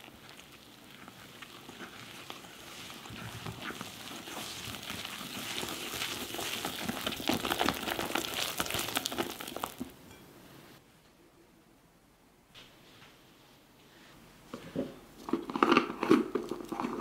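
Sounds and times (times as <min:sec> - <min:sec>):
whisk stirring batter: 0:00.0 - 0:09.8.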